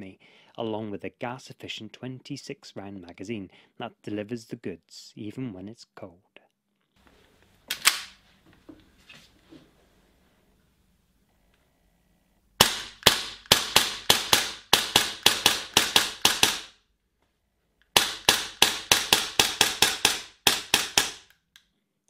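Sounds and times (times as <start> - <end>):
airsoft pistol shots: 12.6 - 16.8, 18.0 - 21.3.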